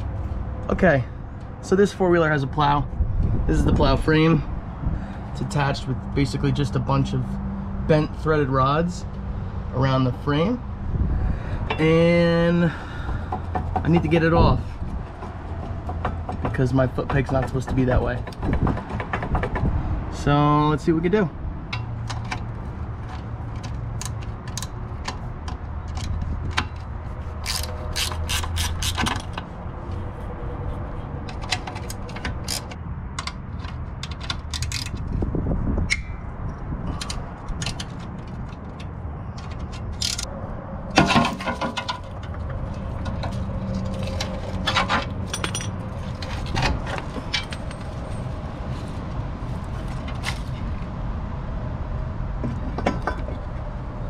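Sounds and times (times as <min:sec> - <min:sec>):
metal clinks and knocks: 0:41.0 - 0:49.0, 0:52.4 - 0:53.6.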